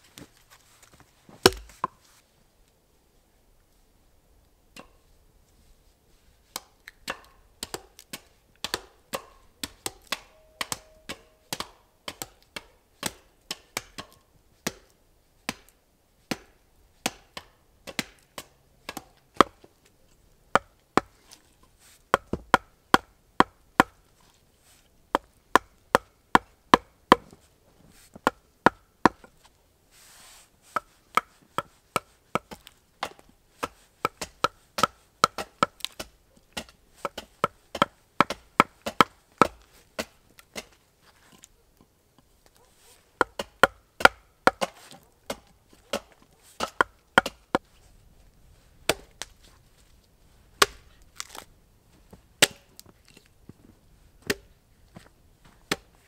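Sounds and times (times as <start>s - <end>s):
mallet striking wood chisel: 1.4s - 1.9s.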